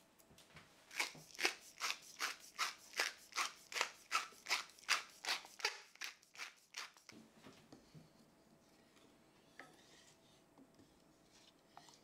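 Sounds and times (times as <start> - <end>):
pepper mill grinding peppercorns: 0.9 - 7.1.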